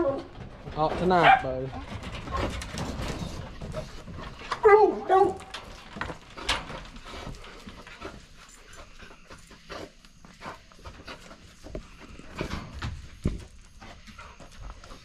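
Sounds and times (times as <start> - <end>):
kennel gate clanking: 0.0 - 7.6
gate rattling and knocking: 0.0 - 8.4.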